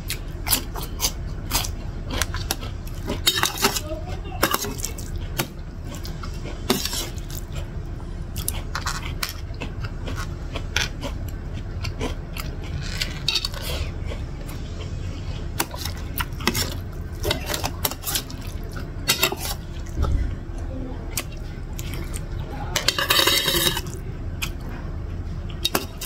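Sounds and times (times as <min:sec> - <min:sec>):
person chewing: 0:00.0 - 0:20.4, 0:21.1 - 0:26.0
cutlery clinking and scraping plate: 0:15.6 - 0:19.6, 0:22.8 - 0:24.0.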